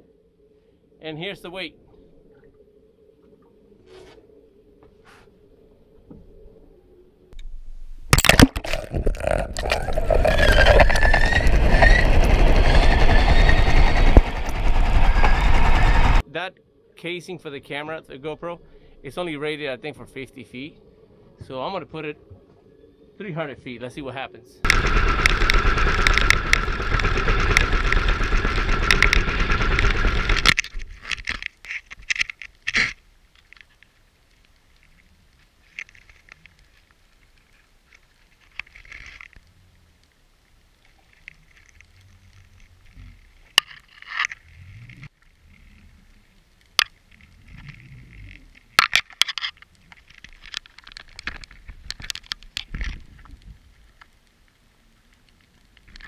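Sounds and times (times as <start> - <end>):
sharp clicks and knocks underwater: 8.1 - 11.6, 24.7 - 39.4, 46.6 - 54.3
rushing water and bubbles: 8.1 - 13.0.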